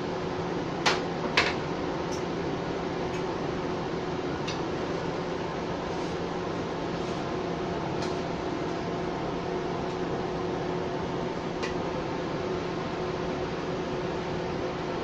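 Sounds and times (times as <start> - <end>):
fan humming: 0.0 - 15.0.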